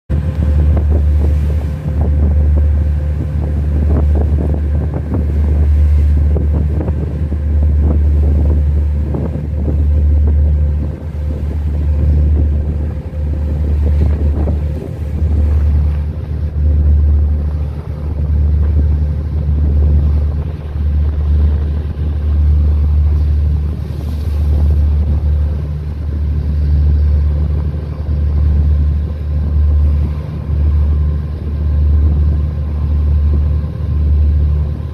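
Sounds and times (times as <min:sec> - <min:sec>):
boat engine droning: 0:00.0 - 0:34.9
water wash: 0:00.1 - 0:34.9
wind buffeting microphone: 0:00.1 - 0:34.9.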